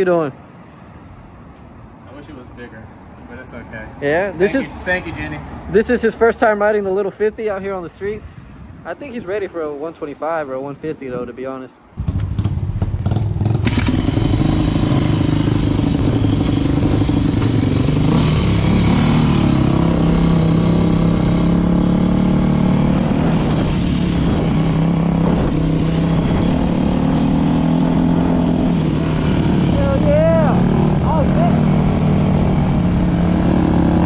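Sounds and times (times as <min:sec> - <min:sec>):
dirt bike engine running: 0:12.0 - 0:24.6.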